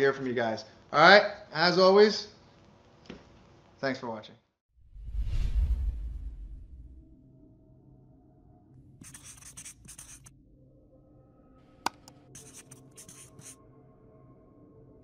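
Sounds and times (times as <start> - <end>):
pen scratching on paper: 9.0 - 10.3, 11.9 - 13.6.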